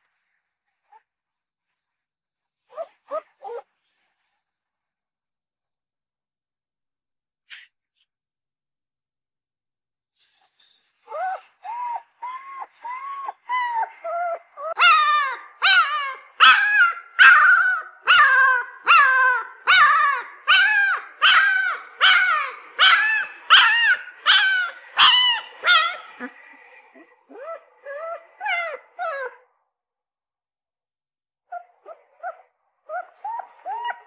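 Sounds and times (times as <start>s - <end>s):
puppy whining yelps: 2.7s - 3.7s, 11.0s - 29.5s, 31.5s - 34.0s.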